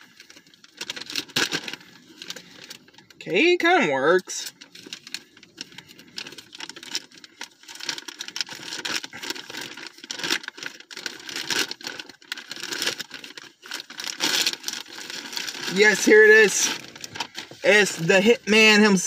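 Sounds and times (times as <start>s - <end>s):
wrapping crinkling and scraping: 0.0s - 19.0s
package cut and torn open: 7.8s - 15.8s.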